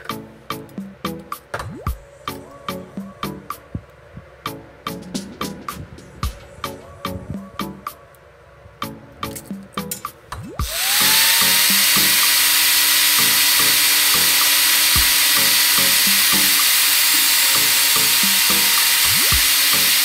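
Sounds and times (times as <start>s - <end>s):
background music with a beat: 0.0s - 8.0s, 8.8s - 12.4s, 13.2s - 16.7s, 17.6s - 20.0s
angle grinder cutting metal: 10.6s - 20.0s.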